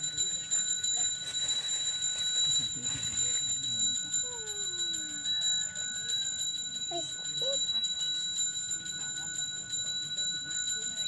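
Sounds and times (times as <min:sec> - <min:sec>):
handbell ringing: 0:00.0 - 0:11.0.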